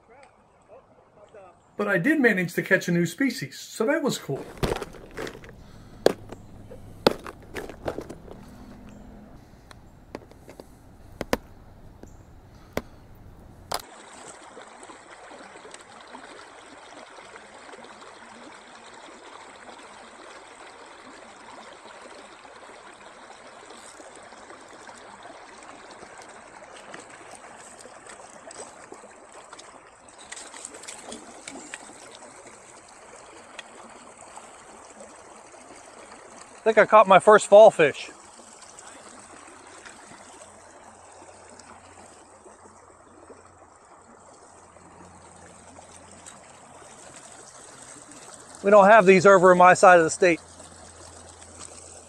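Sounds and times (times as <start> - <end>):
stream running over rocks: 1.7 - 52.0
plastic tackle box clicks: 4.4 - 9.0, 9.7 - 13.8.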